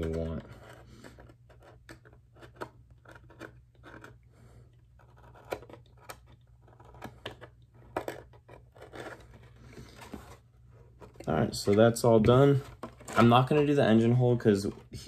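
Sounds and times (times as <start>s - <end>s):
knife blade scraping plastic: 0.0s - 11.8s.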